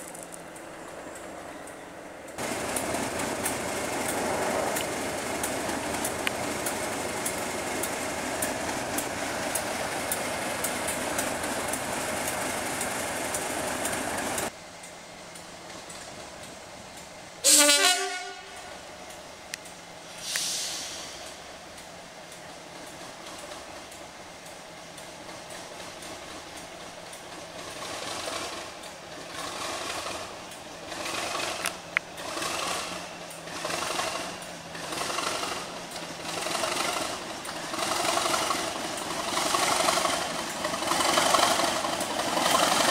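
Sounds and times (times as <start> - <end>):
diesel locomotive engine running: 0.0 - 42.9
loud train horn blast: 17.4 - 18.9.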